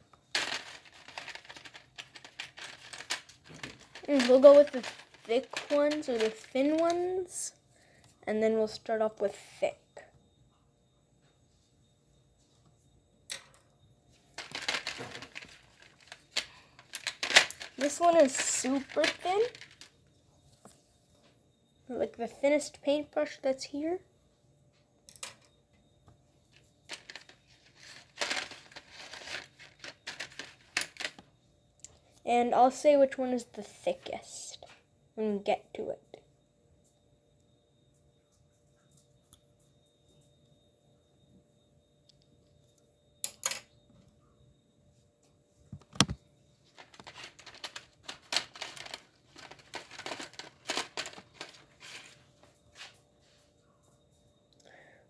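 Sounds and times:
rustling and crinkling: 0.1 - 7.2, 14.2 - 21.4, 26.5 - 31.3, 45.8 - 53.6.

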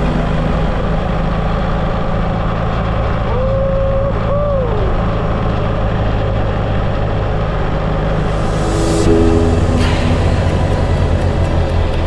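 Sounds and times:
wavering rising and falling tone: 7.4 - 12.0
wind rush: 7.5 - 12.0.

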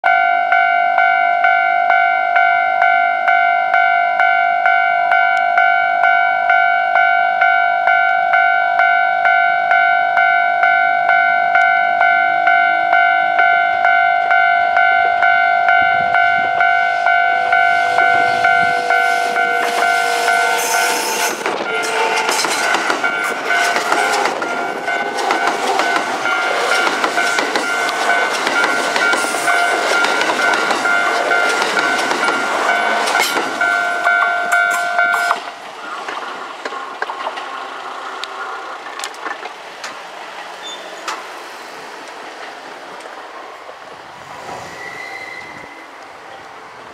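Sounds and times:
level crossing alarm clanging: 0.0 - 40.0
wheels clacking on rails: 0.1 - 46.9
train rumbling past: 11.1 - 46.9.

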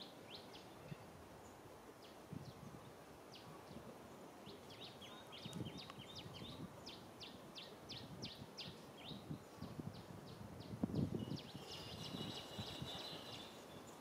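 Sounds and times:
small bird chirping: 11.0 - 14.0.

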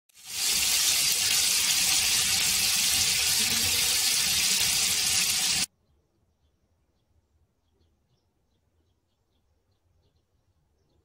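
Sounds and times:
chicken sizzling in hot oil: 0.1 - 5.7.

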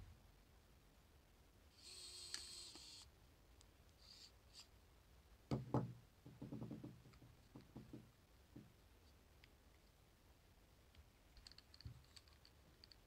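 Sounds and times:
knocks on wooden table: 5.5 - 7.0.

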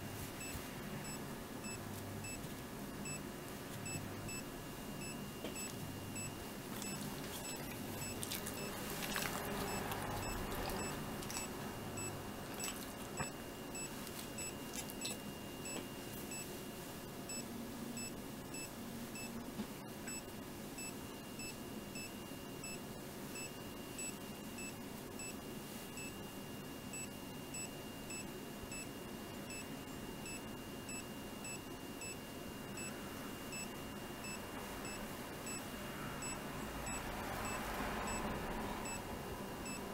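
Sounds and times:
faint steady hum: 0.0 - 39.9
rustling: 6.6 - 11.7.

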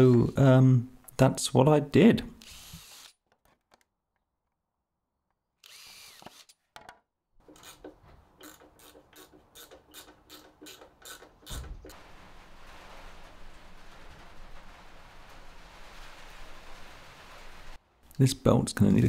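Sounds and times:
cordless drill drilling plastic: 2.4 - 3.2, 5.6 - 6.6.

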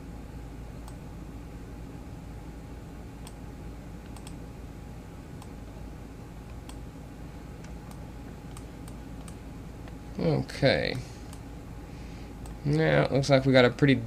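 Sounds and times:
steady low hum: 0.0 - 14.0
faint computer mouse clicks: 4.0 - 4.4, 6.5 - 6.8, 7.6 - 9.4.

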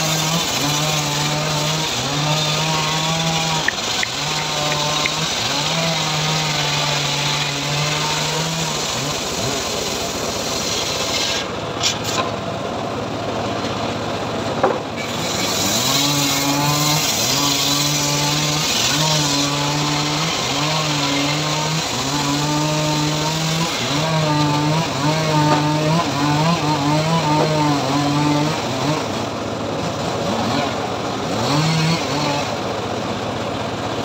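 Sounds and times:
circular sawmill cutting log: 0.0 - 34.0.

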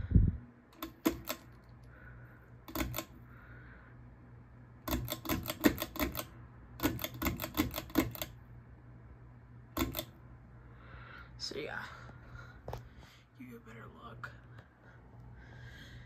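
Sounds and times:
ceiling fan motor hum: 0.0 - 16.0
fan clicking: 0.7 - 2.0, 2.6 - 3.2, 4.8 - 8.5, 9.7 - 10.2.

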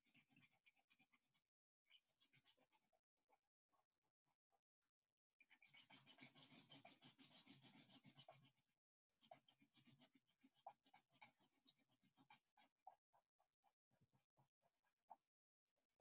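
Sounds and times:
drawing tool scratching paper: 5.8 - 8.5.

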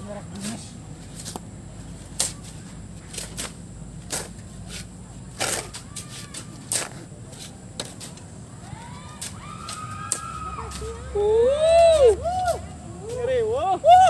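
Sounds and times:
shovels scraping sand: 0.3 - 8.3.

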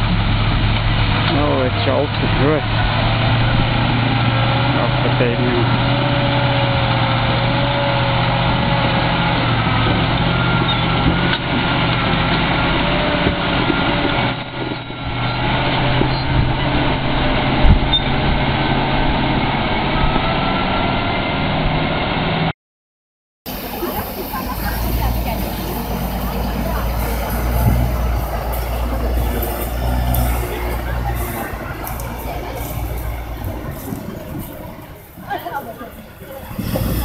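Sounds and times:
truck engine running under load: 0.0 - 22.5, 23.5 - 37.0.

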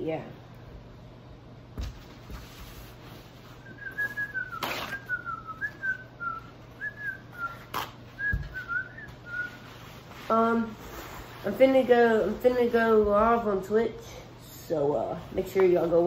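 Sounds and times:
person whistling: 3.6 - 9.9.

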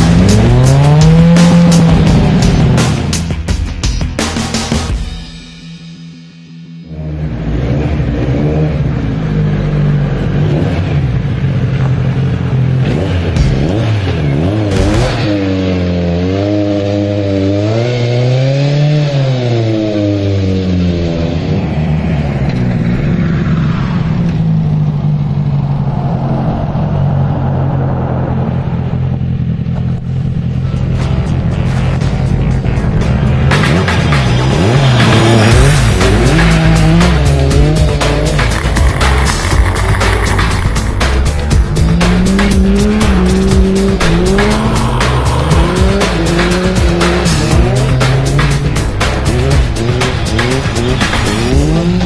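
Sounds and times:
race car engine revving: 0.0 - 3.1, 6.8 - 52.0
race car engine running: 28.4 - 52.0.

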